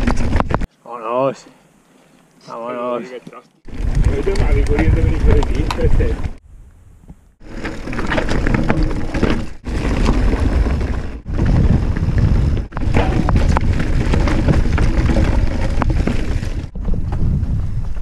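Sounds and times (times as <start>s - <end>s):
bike rattling: 0.0s - 0.7s, 3.6s - 6.4s, 7.4s - 18.0s
wind buffeting microphone: 3.7s - 7.4s, 9.6s - 18.0s
tyres crunching over stones: 7.4s - 16.8s.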